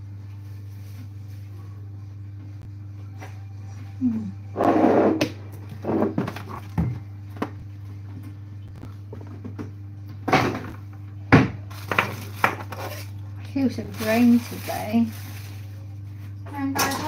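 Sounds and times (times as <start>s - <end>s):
steady low hum: 0.0s - 17.0s
kitchen knocks and clatters: 6.0s - 7.6s, 9.1s - 12.9s, 16.6s - 17.0s.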